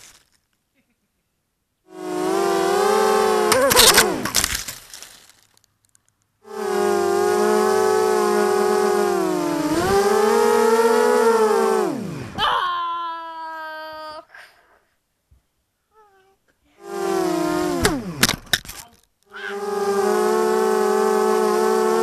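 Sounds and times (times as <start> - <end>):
drone motors whining: 1.9 - 4.7, 6.4 - 12.6, 16.8 - 22.0.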